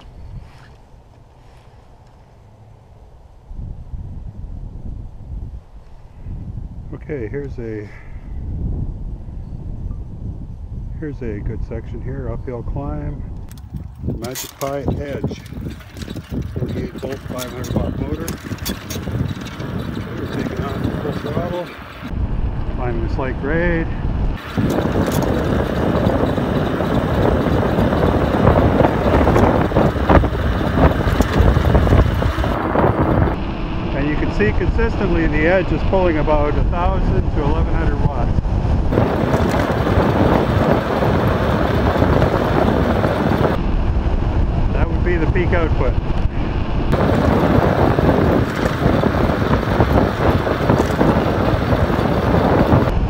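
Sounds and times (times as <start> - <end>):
wind buffeting microphone: 0.0 - 53.0
bike tyres rumbling on pavement: 13.6 - 22.2, 24.3 - 35.5, 38.8 - 43.6, 46.9 - 53.0.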